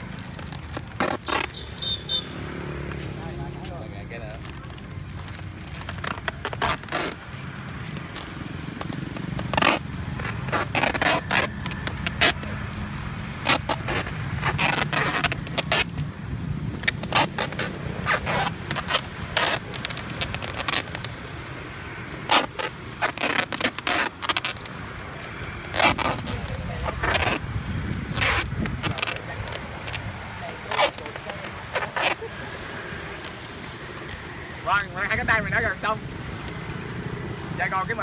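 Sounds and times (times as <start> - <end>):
packing tape pulled off roll: 22.2 - 34.6.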